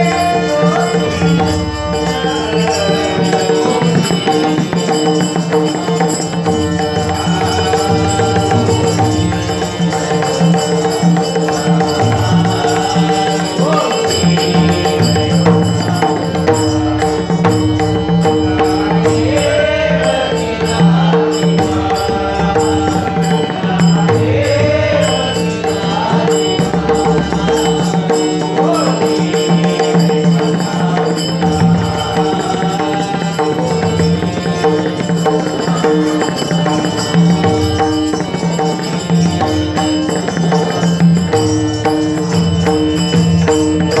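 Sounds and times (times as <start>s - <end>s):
man singing devotional song: 0.0s - 44.0s.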